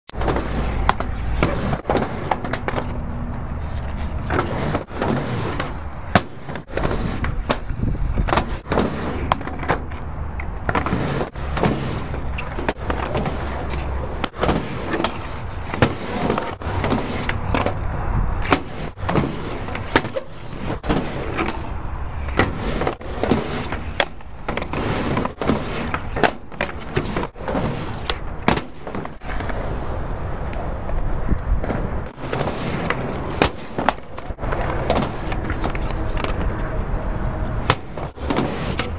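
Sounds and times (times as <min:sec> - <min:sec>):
skateboard clacking on ramp: 0:00.1 - 0:03.5, 0:30.4 - 0:36.8, 0:37.5 - 0:38.9
skateboard rolling on asphalt: 0:00.1 - 0:38.9.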